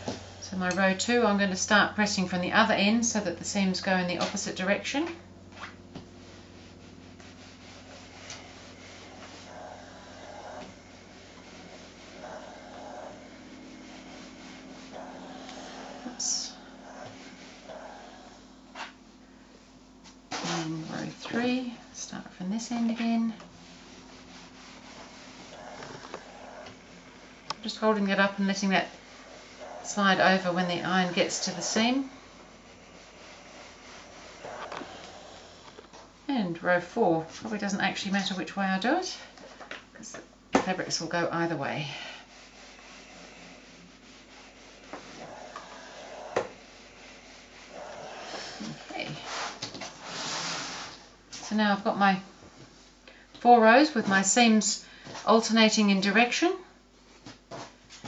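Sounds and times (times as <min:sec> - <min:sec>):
steady low hum: 0:00.0 - 0:58.0
iron sliding over fabric: 0:04.2 - 0:36.0, 0:40.7 - 0:51.5.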